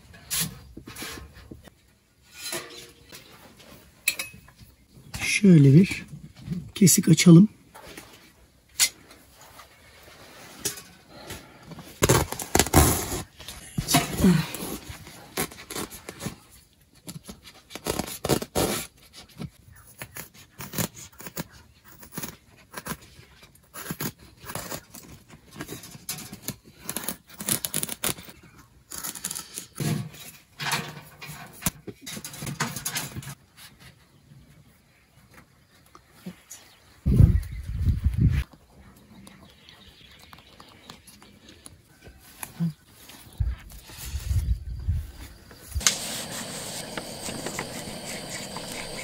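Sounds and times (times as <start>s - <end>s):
blade cutting into wood: 45.8s - 49.0s.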